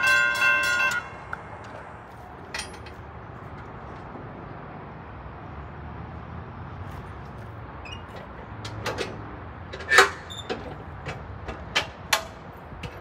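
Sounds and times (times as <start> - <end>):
metal clanks and knocks: 0.0 - 3.7, 8.0 - 13.0.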